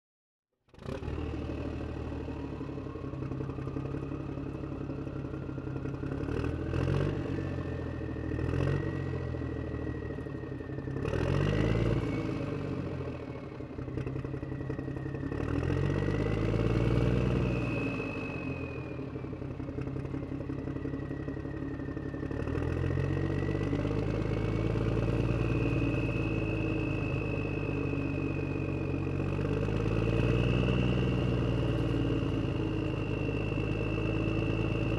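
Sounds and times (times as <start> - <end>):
thin whine gliding in pitch: 7.3 - 34.9.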